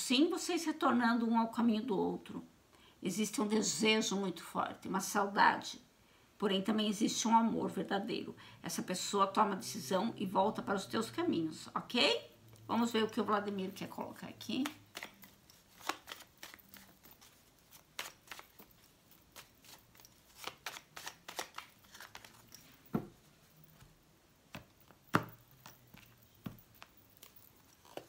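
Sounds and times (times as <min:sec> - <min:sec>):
cards being shuffled: 0:13.5 - 0:28.0.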